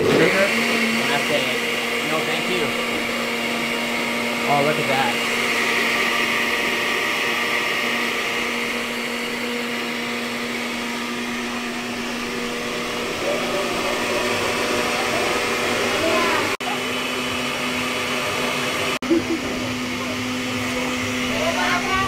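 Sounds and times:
electric blender running: 0.0s - 22.0s.

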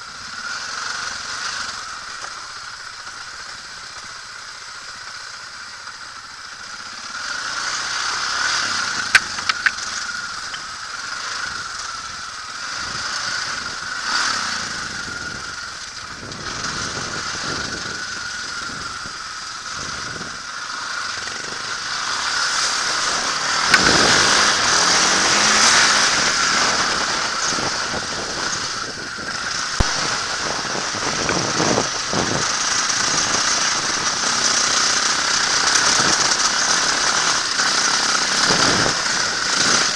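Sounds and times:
dirt bike engine revving: 0.0s - 39.9s
bike knocking on rough ground: 9.1s - 9.9s.

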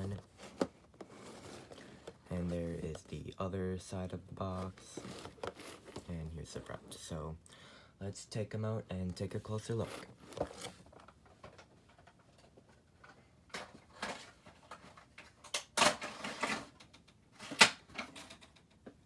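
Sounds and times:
cardboard and plastic handling: 0.0s - 7.1s, 9.1s - 16.7s.

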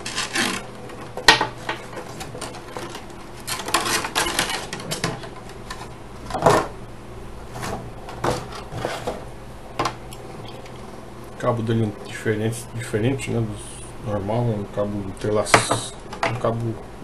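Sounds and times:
cardboard and plastic rustling: 0.0s - 6.7s, 7.5s - 9.3s.

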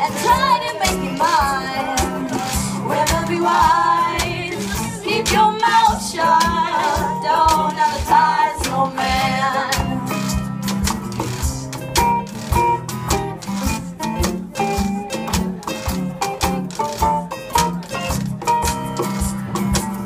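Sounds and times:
several voices singing: 0.0s - 10.4s
strummed acoustic guitars: 0.0s - 20.0s.

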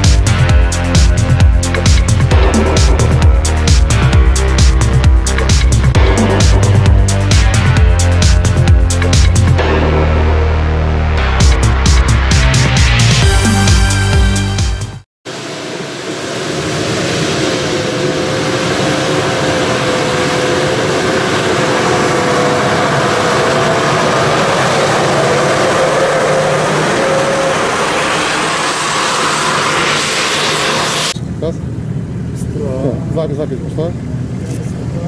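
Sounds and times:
engine at high revs: 15.7s - 31.2s.

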